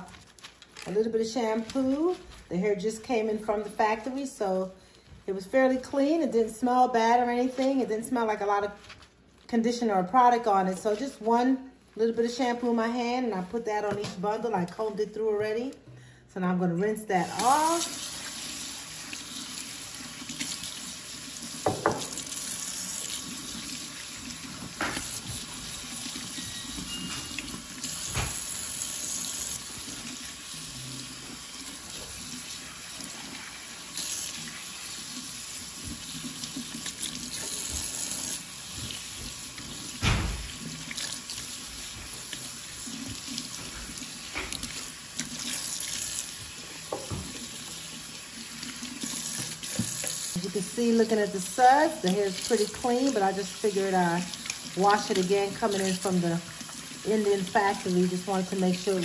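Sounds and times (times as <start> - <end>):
faucet running into metal sink: 17.2 - 59.0.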